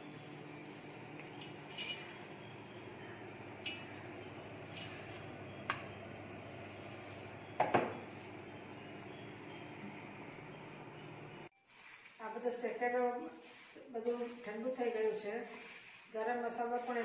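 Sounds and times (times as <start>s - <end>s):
utensils clattering: 0.0s - 8.1s.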